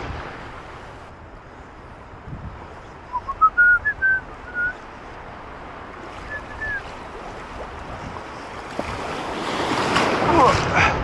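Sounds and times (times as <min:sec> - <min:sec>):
wind and surf: 0:00.0 - 0:11.0
person whistling: 0:03.1 - 0:04.8, 0:06.3 - 0:06.8.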